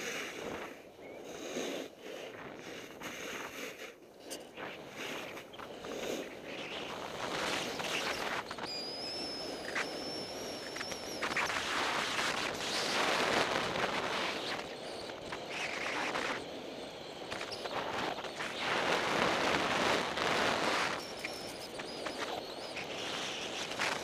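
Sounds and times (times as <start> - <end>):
thin high whistle: 7.6 - 13.0, 20.8 - 24.0.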